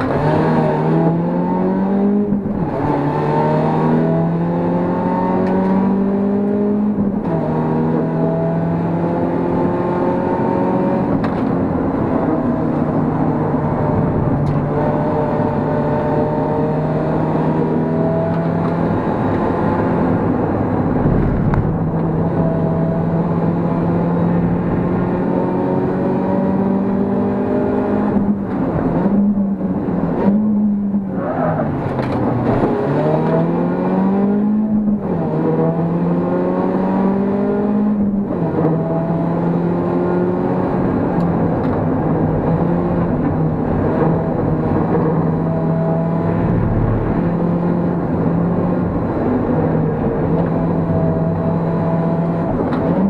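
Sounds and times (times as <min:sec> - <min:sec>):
car engine at full throttle: 0:00.0 - 0:53.0.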